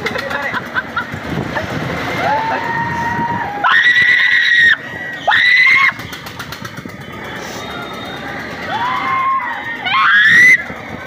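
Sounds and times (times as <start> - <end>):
riders screaming: 2.1 - 6.3, 7.2 - 11.0.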